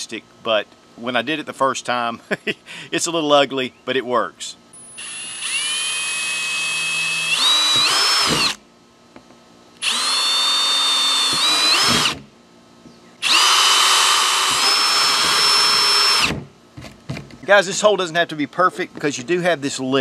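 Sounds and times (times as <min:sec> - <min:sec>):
cordless drill whining: 0:04.8 - 0:08.6, 0:09.8 - 0:12.2, 0:13.2 - 0:16.4.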